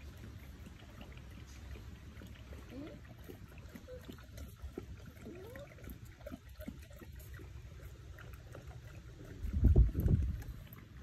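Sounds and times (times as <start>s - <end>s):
puppies whimpering: 2.4s - 7.2s.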